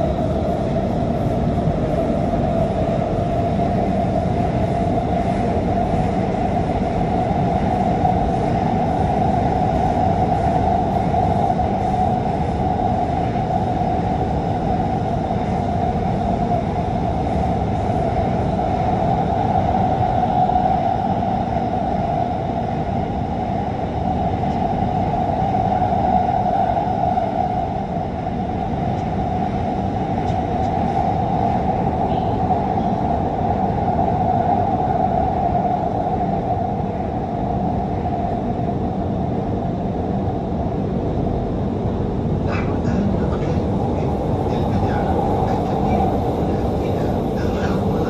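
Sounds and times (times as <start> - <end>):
train rumble with whine: 0.0 - 48.0.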